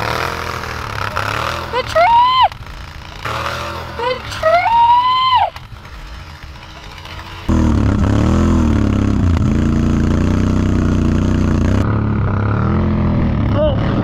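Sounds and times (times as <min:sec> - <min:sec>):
atv engine revving: 0:00.0 - 0:14.0.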